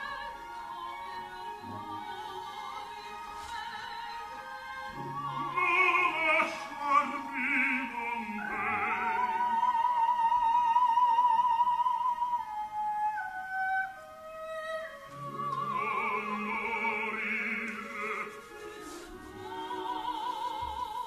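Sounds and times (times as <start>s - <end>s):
orchestra playing: 0.0s - 9.9s, 15.1s - 20.5s
operatic singing: 0.0s - 12.3s, 15.0s - 21.0s.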